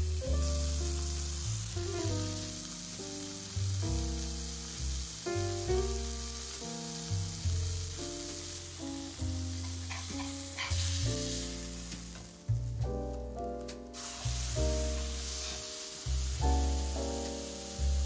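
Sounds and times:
background music: 0.0s - 18.0s
burger patty sizzling: 0.0s - 18.0s
metal spatula scraping: 9.6s - 11.0s.

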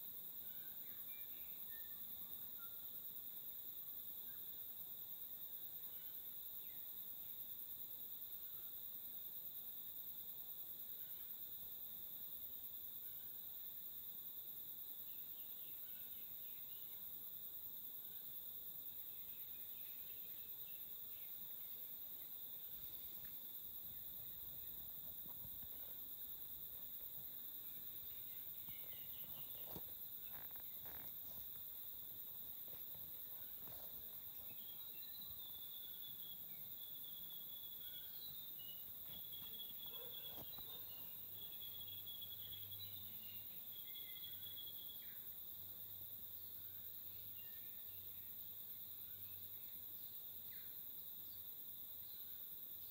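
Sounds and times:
insects buzzing: 0.0s - 52.9s
faint chirps: 0.4s - 3.1s, 18.9s - 45.3s.

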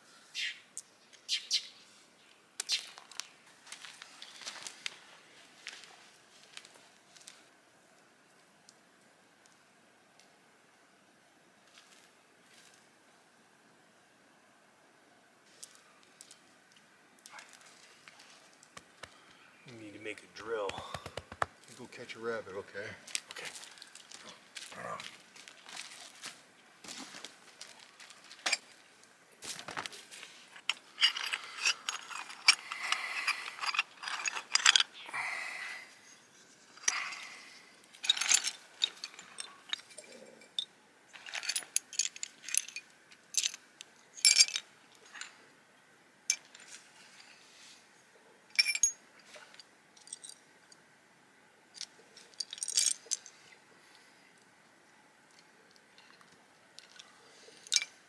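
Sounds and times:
small bone and stone pieces clinking: 30.6s - 35.0s, 36.8s - 45.3s, 48.5s - 49.0s, 51.8s - 53.4s, 57.6s - 57.9s.

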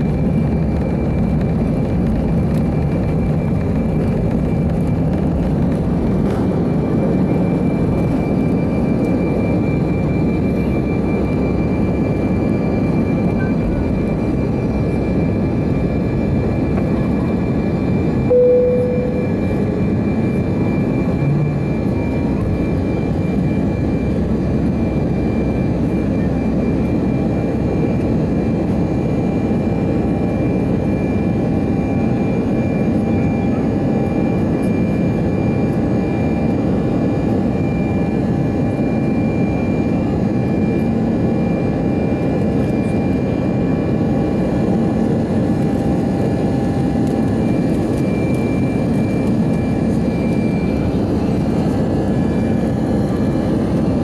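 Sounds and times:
jet engine and airflow rush: 0.0s - 54.0s
brief single tone: 16.5s - 28.0s
high whining tones: 18.1s - 25.5s.

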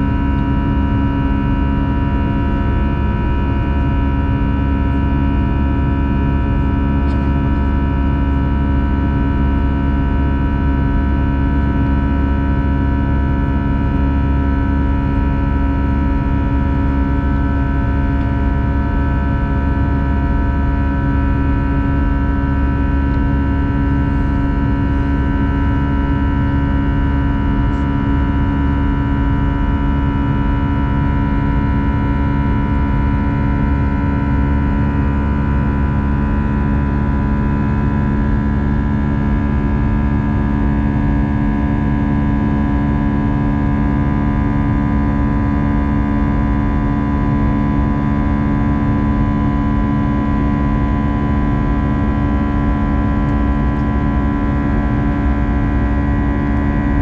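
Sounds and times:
jet engine drone in cabin: 0.0s - 57.0s.

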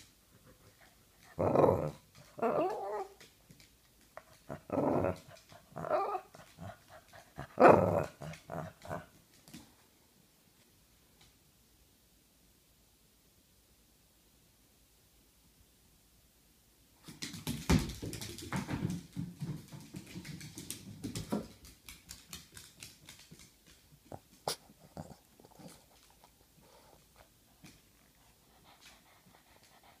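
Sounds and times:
dog claws clicking on wooden floor: 17.0s - 24.3s.

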